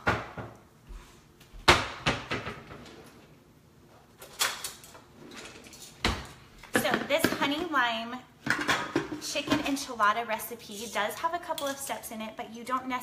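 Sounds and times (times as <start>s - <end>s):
drawers clattering: 4.2s - 7.4s.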